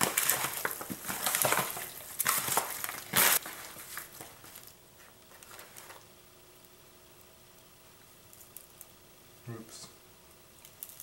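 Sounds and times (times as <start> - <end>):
raw meat squishing: 0.0 - 4.7
foil pan crinkling: 0.0 - 6.1.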